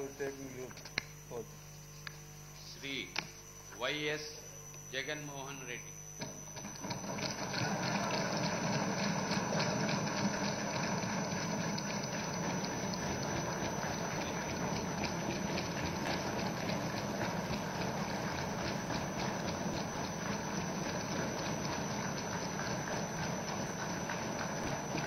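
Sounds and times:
crowd applauding: 7.3s - 11.4s.

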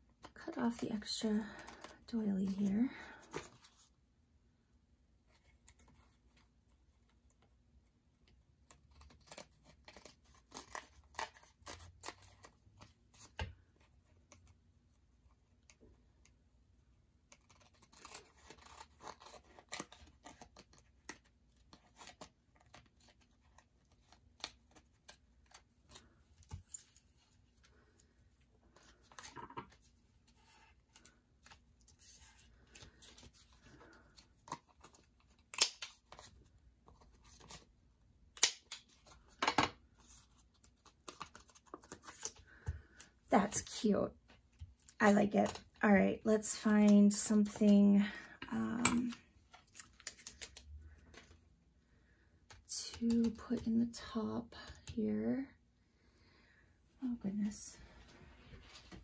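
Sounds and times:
scissors snipping paper: 8.6s - 12.6s, 17.3s - 27.0s, 33.8s - 36.3s, 52.5s - 53.7s.

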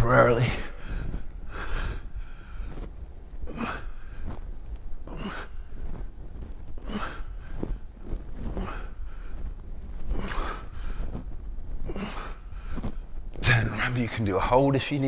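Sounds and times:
man breathing hard: 0.6s - 4.4s, 5.0s - 6.0s, 10.1s - 13.1s.

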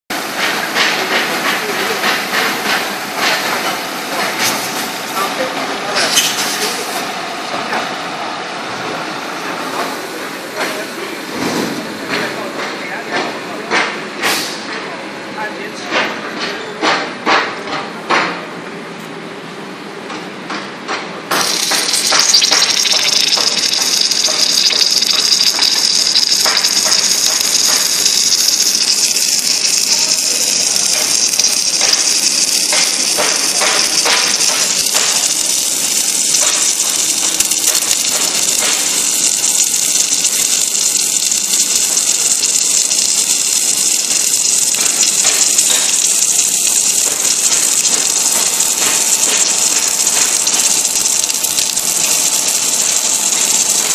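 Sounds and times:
welding flux suction rushing hiss: 0.2s - 7.5s, 21.3s - 53.9s
welding crackling: 21.3s - 53.9s.

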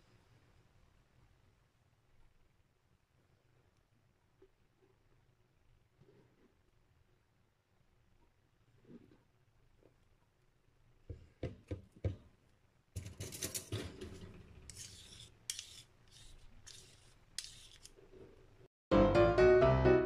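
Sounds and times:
spoon scraping against spoon: 13.0s - 18.3s.

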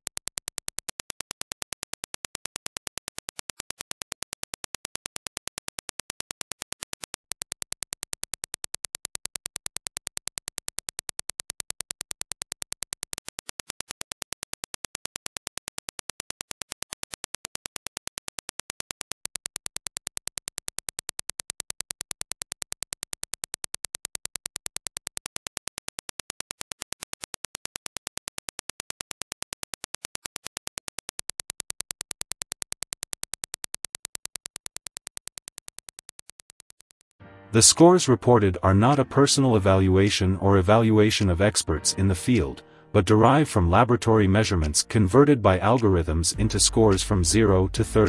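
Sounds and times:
sharp electronic clicks: 0.0s - 37.2s.

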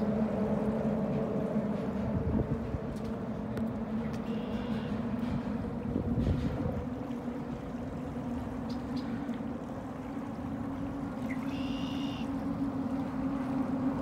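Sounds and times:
low motor hum: 0.0s - 14.0s
rushing wind and water: 0.0s - 14.0s.

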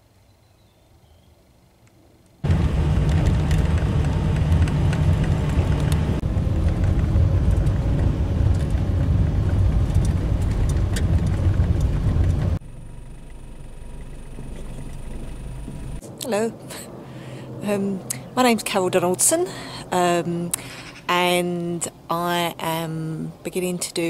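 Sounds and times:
engine and road rumble in car: 2.4s - 16.1s.

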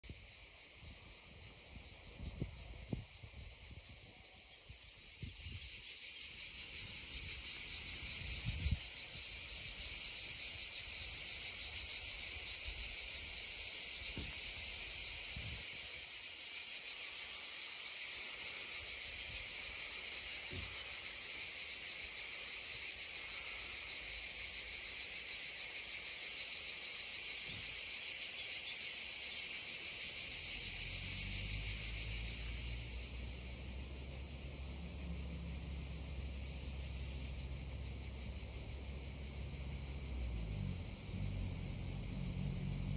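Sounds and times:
cicadas droning: 0.0s - 42.9s.

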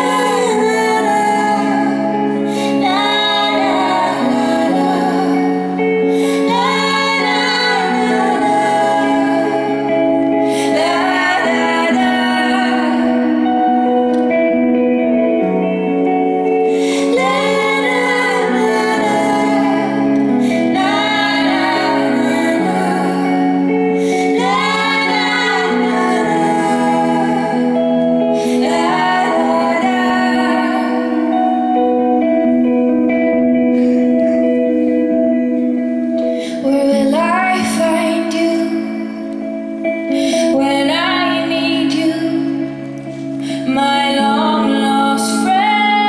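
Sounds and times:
women singing together: 0.0s - 13.4s, 16.7s - 31.2s
electric guitar: 0.0s - 46.0s
held chords: 0.0s - 46.0s.

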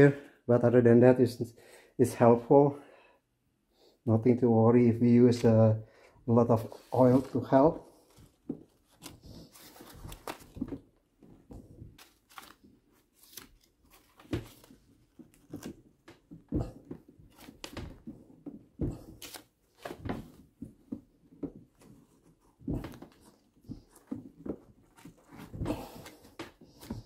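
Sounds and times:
paper rustling: 6.6s - 16.3s, 18.9s - 21.0s.

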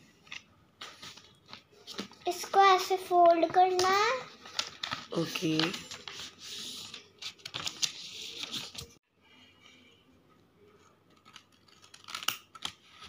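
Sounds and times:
faint room noise: 0.0s - 13.0s
paper rustling and crinkling: 0.2s - 9.0s.

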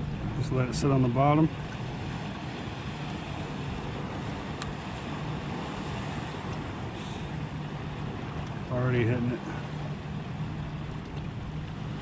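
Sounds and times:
water around a boat: 0.0s - 12.0s
faint tick: 4.6s - 4.8s, 11.0s - 11.8s.

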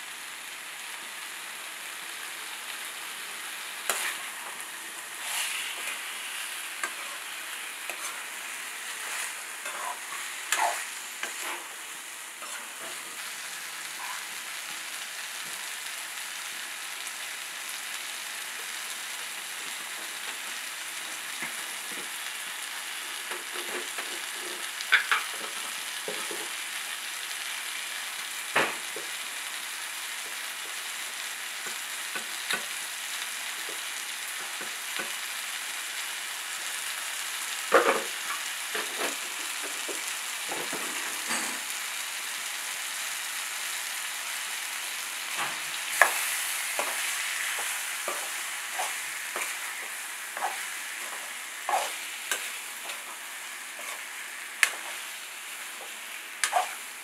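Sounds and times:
food sizzling in oil: 0.0s - 57.0s
metal spatula scraping pan: 3.9s - 11.7s, 12.4s - 13.2s, 50.4s - 53.2s, 56.4s - 56.8s.

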